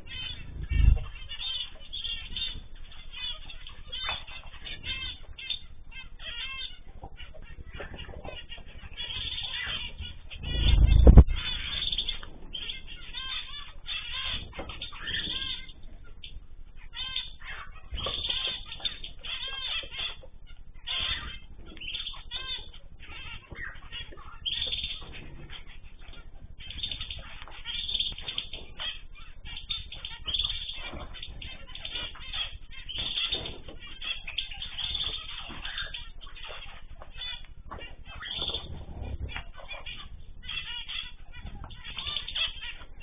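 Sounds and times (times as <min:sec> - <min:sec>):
wing flutter: 0:00.0 - 0:02.5, 0:03.2 - 0:16.0
small birds chirping: 0:00.0 - 0:43.0.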